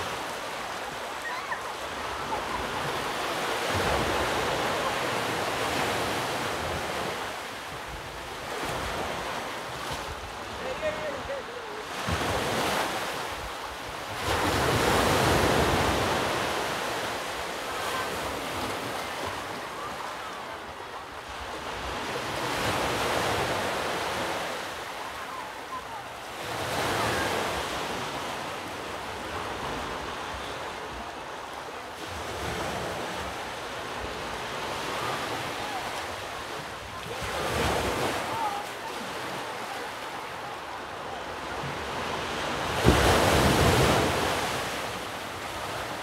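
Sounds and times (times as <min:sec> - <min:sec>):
ocean waves breaking: 0:00.0 - 0:46.0.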